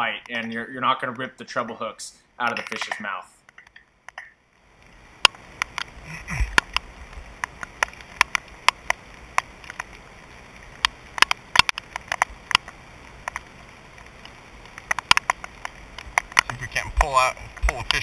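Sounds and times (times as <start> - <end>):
raindrops tapping on camera: 2.4 - 18.0
rain hissing on pond: 3.9 - 18.0.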